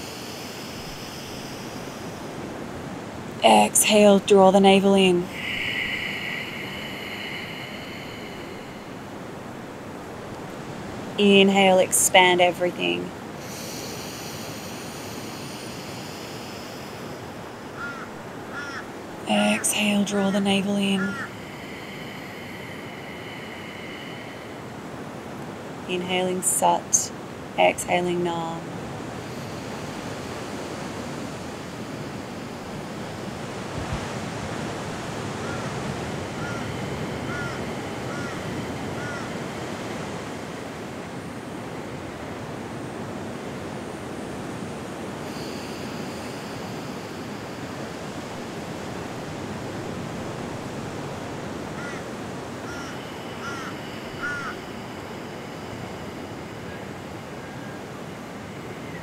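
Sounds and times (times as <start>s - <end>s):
slow deep breathing: 5.3s - 10.4s, 13.3s - 17.8s, 21.2s - 25.9s.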